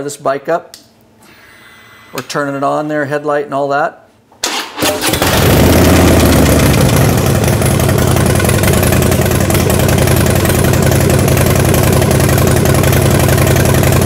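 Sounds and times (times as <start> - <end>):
motorcycle engine idling: 5.2 - 14.0.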